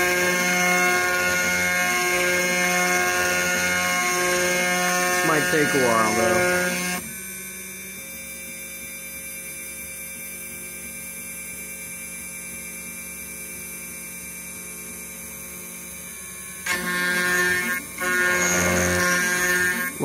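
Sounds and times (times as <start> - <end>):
router spindle hum: 0.0 - 7.8, 16.6 - 20.0.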